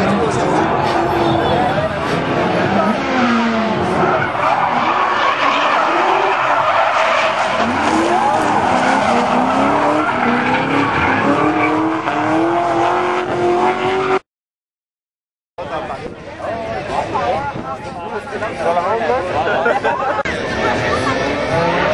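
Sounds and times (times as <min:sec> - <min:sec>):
car engine revving hard: 0:00.8 - 0:14.2.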